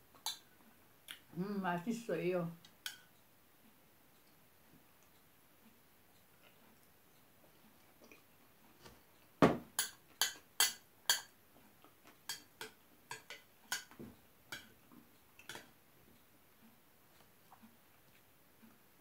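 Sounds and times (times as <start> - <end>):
metal spoon clinking on bowl: 9.8 - 11.3, 12.3 - 14.7.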